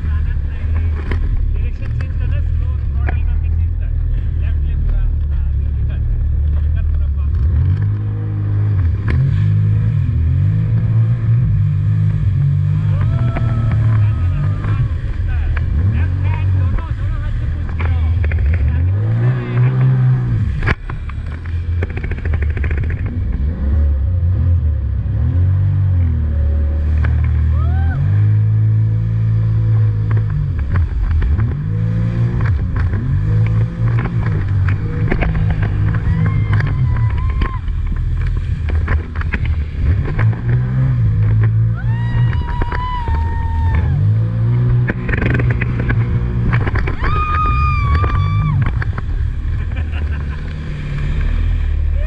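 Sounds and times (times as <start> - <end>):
jet ski engine running: 0.0 - 25.0, 25.8 - 52.0
hull splashing over waves: 9.2 - 22.6, 26.8 - 44.8, 46.2 - 52.0
woman shouting: 36.0 - 37.6.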